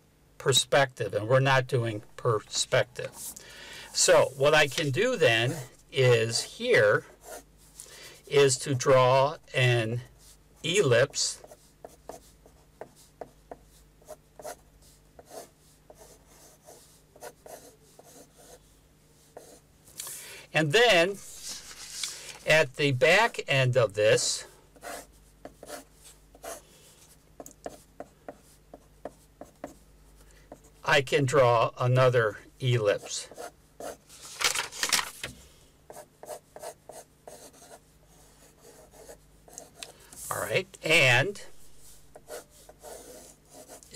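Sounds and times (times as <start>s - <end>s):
pencil scratching on paper: 6.3s - 7.5s, 11.3s - 18.6s, 19.2s - 19.6s, 24.8s - 29.8s, 33.0s - 34.0s, 35.9s - 43.9s.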